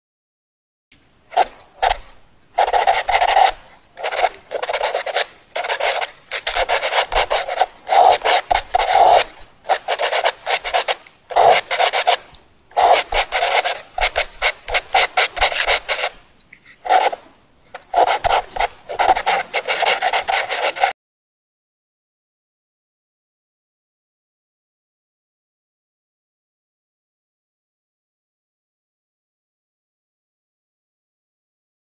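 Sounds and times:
pencil scratching on paper: 1.3s - 20.9s.

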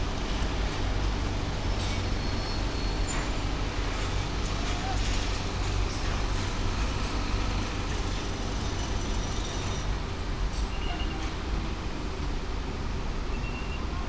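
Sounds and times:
road traffic rumble and hiss: 0.0s - 14.0s
construction equipment: 0.1s - 10.2s.

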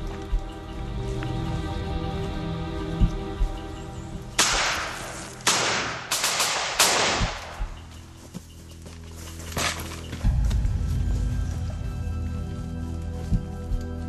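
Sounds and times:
background music steady tones: 0.0s - 14.0s
sharp crack-like hits: 4.4s - 7.8s.

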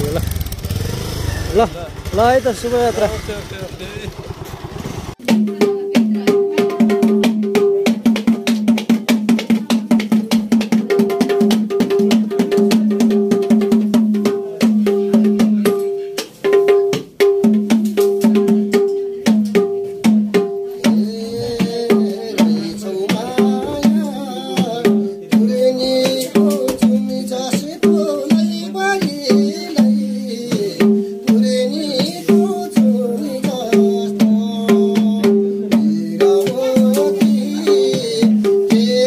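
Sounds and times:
barrel hand drum rhythm: 0.0s - 39.0s
man singing: 20.3s - 39.0s.

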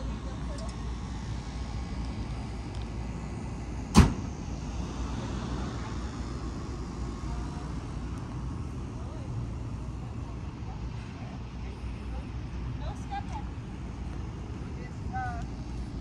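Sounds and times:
low outdoor rumble: 0.0s - 16.0s
sharp loud knock: 4.0s - 4.3s.

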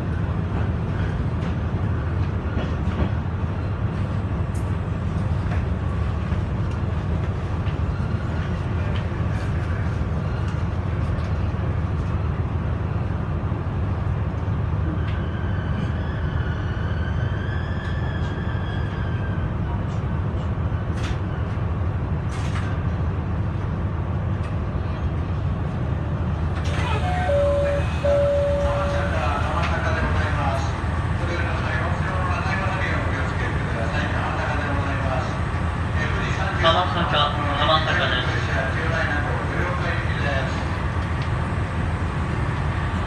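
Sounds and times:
railcar engine rumble: 0.0s - 43.0s
wavering high tone: 26.9s - 29.2s.

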